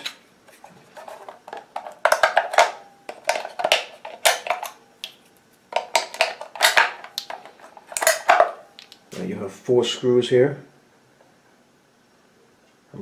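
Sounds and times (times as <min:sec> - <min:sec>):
batteries clicking and clinking: 0:01.0 - 0:09.0.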